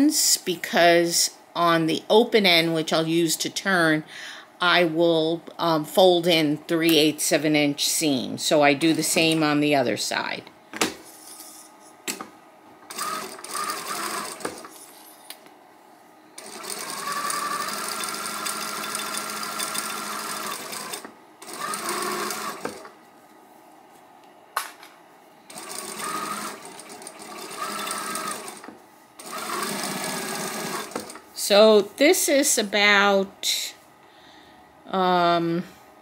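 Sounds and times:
sewing machine stitching: 0:12.9 - 0:14.7, 0:16.4 - 0:22.9, 0:25.5 - 0:31.2.

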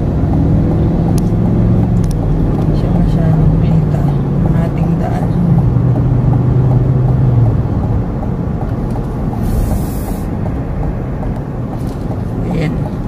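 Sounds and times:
car interior road rumble: 0:00.0 - 0:13.0
brief high hiss: 0:09.4 - 0:10.3.

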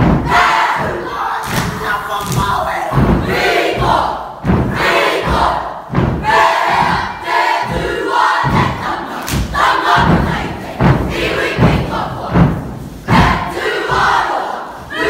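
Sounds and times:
group shouting a chant: 0:00.2 - 0:12.2, 0:13.1 - 0:15.0.

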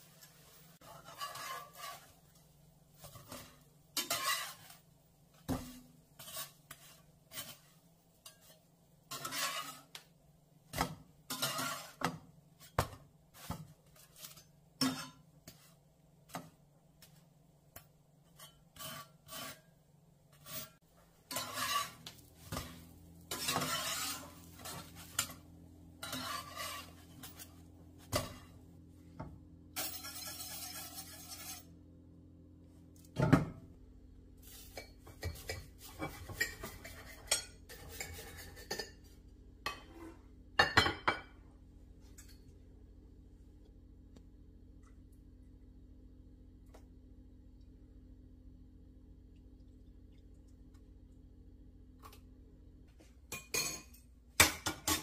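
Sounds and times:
metal spatula scraping frying pan: 0:00.0 - 0:10.1, 0:11.2 - 0:12.8, 0:13.4 - 0:15.7, 0:18.2 - 0:28.6, 0:29.8 - 0:31.8, 0:34.4 - 0:39.1
sizzling: 0:00.0 - 0:29.1, 0:29.7 - 0:32.2, 0:34.2 - 0:39.0
pans and utensils clinking: 0:03.0 - 0:04.8, 0:10.8 - 0:12.8, 0:20.4 - 0:25.4, 0:26.0 - 0:28.5, 0:29.8 - 0:31.7, 0:34.4 - 0:41.4, 0:53.3 - 0:55.0.

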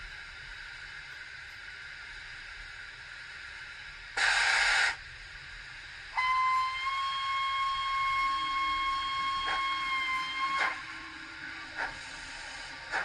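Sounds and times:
steam hiss burst: 0:04.2 - 0:05.1, 0:06.1 - 0:13.0
steam whistle: 0:06.1 - 0:12.0.

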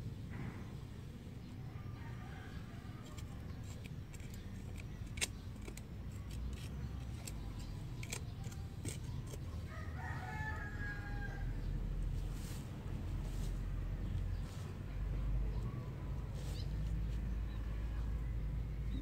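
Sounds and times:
rooster crowing: 0:09.7 - 0:11.8.

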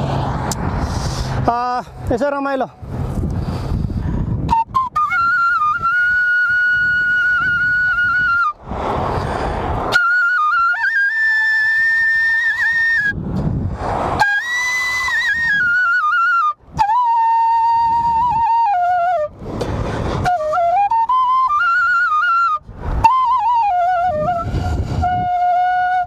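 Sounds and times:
rushing breath noise: 0:00.6 - 0:02.1, 0:02.8 - 0:04.5, 0:08.6 - 0:09.9, 0:19.4 - 0:20.3, 0:24.4 - 0:25.1
bamboo flute slow melody: 0:04.4 - 0:08.6, 0:09.9 - 0:13.2, 0:14.2 - 0:19.4, 0:20.2 - 0:26.0.

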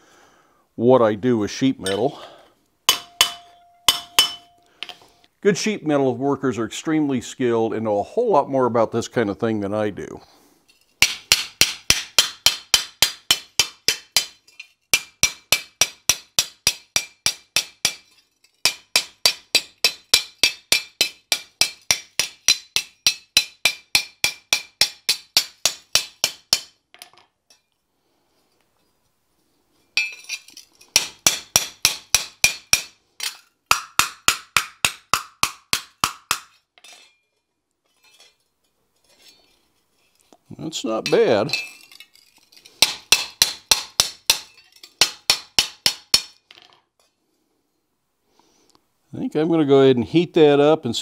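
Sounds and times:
hammer ringing on steel blade: 0:02.9 - 0:04.6.

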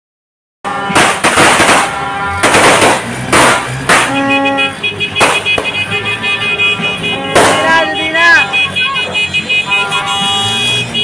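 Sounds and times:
firecrackers banging: 0:00.7 - 0:05.8, 0:06.8 - 0:07.9.

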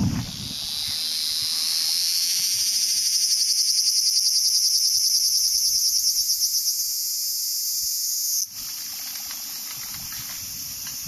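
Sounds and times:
cicada buzzing: 0:00.0 - 0:11.0.

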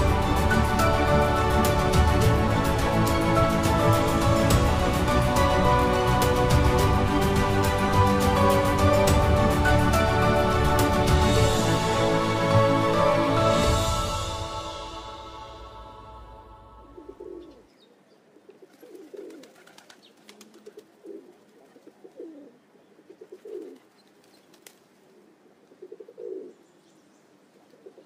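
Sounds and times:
background music: 0:00.0 - 0:17.6
pigeon cooing: 0:16.8 - 0:17.7, 0:18.3 - 0:24.0, 0:25.1 - 0:26.6, 0:27.6 - 0:28.0.

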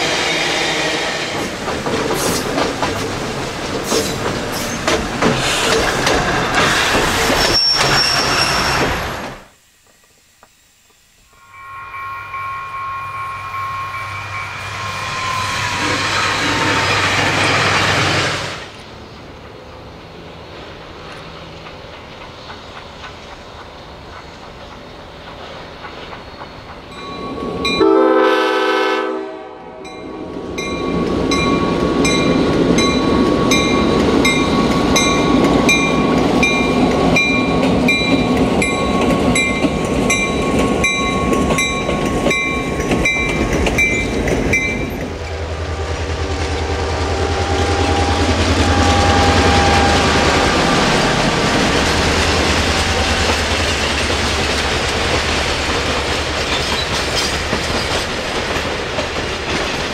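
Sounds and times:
train wheels clacking: 0:00.0 - 0:11.0, 0:20.9 - 0:27.9, 0:30.0 - 0:59.9
high ringing tone: 0:11.2 - 0:17.0, 0:26.9 - 0:28.5, 0:46.5 - 0:51.1
train horn blast: 0:11.3 - 0:16.8, 0:27.8 - 0:30.3, 0:45.4 - 0:50.9.

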